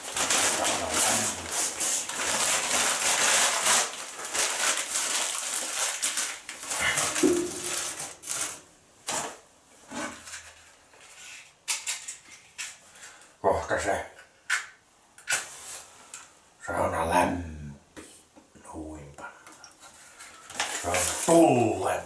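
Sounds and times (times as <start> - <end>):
newspaper tearing and crumpling: 0.0 - 9.4, 20.5 - 21.8.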